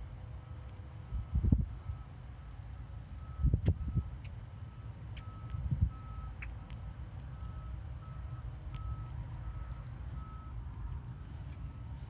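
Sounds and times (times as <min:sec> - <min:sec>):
reverse warning beeper: 0:03.2 - 0:04.1, 0:04.7 - 0:06.5, 0:07.4 - 0:12.0.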